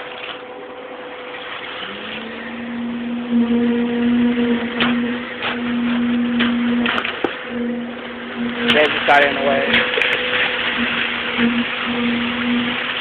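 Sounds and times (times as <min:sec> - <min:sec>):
steady mechanical hum: 0:00.0 - 0:13.0
wet concrete pouring down chute: 0:00.0 - 0:13.0.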